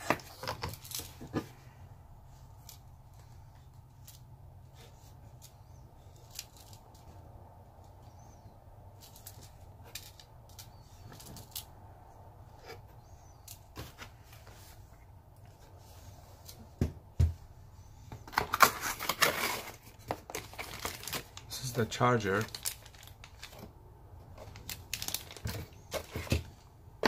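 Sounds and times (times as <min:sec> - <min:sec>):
packaging rustling: 0:18.2 - 0:23.7, 0:24.3 - 0:26.5.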